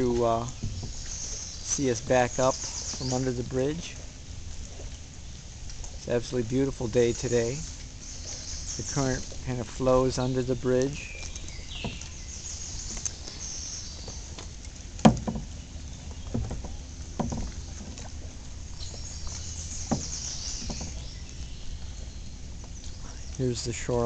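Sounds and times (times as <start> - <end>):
paddle splashing water: 0.0 - 24.0
sharp knocks: 15.0 - 15.6, 16.2 - 18.1, 19.8 - 21.0.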